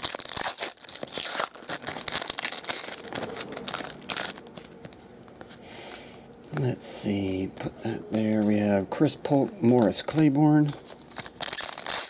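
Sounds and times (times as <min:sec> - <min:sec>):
foil wrapper tearing and crinkling: 0:00.0 - 0:04.9, 0:09.7 - 0:12.0
cards rustling: 0:00.0 - 0:12.0.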